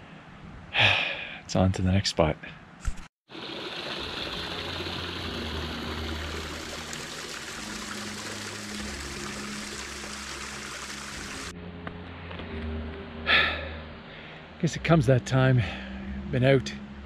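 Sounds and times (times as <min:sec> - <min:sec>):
stream splashing over rocks: 0:03.3 - 0:11.5.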